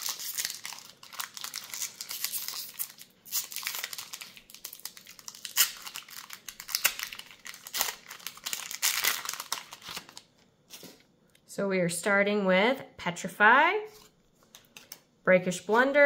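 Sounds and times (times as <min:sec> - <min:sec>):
foil wrapper crinkling and tearing: 0:00.0 - 0:10.8.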